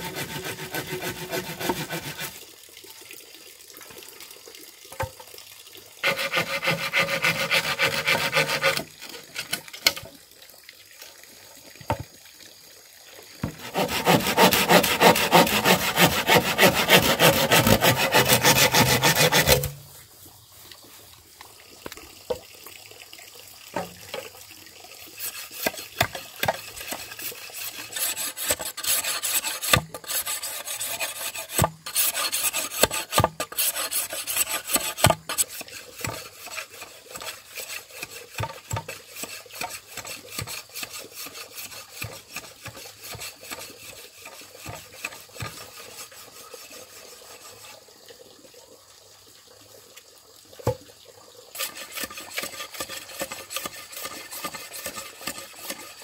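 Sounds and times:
hand tool rasping bamboo: 0:00.0 - 0:02.4, 0:06.0 - 0:10.0, 0:13.4 - 0:19.8, 0:25.2 - 0:47.7, 0:51.6 - 0:56.0.

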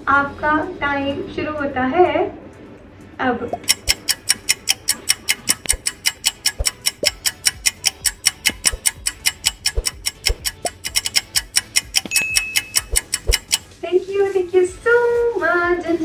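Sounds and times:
clock ticking fast: 0:03.5 - 0:13.8
thin high tone: 0:12.1 - 0:12.8.

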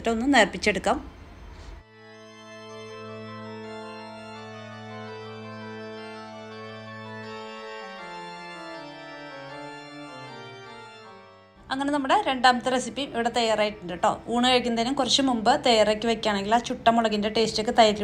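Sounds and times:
slow held keyboard chords: 0:01.1 - 0:11.7.

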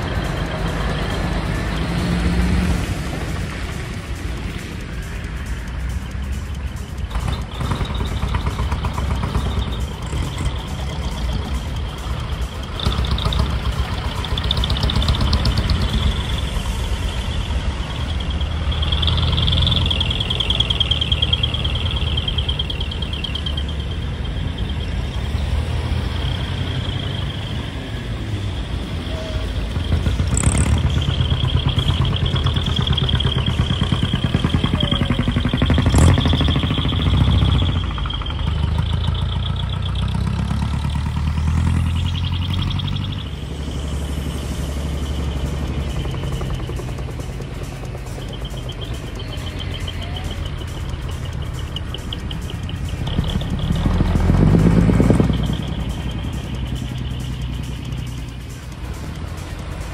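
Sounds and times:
truck engines running low: 0:00.0 - 0:59.9
rapid high-pitched pulsing chirp: 0:05.4 - 0:59.9.

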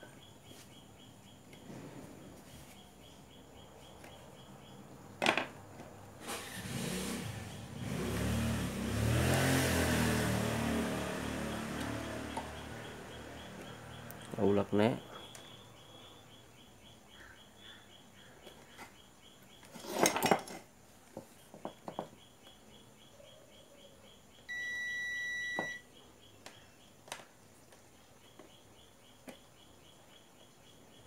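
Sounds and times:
clatter of handling: 0:19.7 - 0:20.7
multimeter continuity beep: 0:24.5 - 0:25.9.

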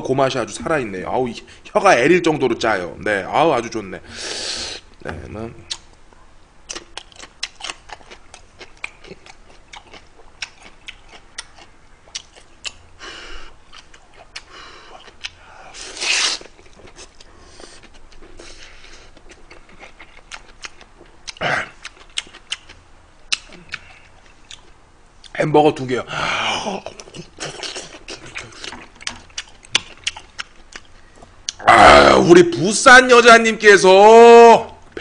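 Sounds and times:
wet chewing and lip-smacking: 0:06.7 - 0:12.9, 0:13.6 - 0:25.3, 0:26.8 - 0:31.6.

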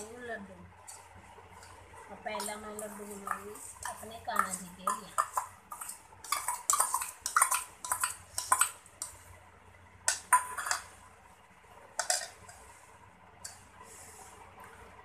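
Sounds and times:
steel spoons clinking on bowl: 0:10.1 - 0:10.9.

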